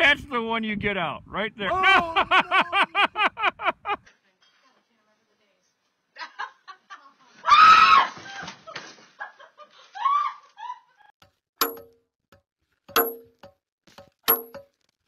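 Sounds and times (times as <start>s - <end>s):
person laughing: 1.7s - 4.0s
sledgehammer striking steel wedges: 11.6s - 12.0s, 12.9s - 14.7s.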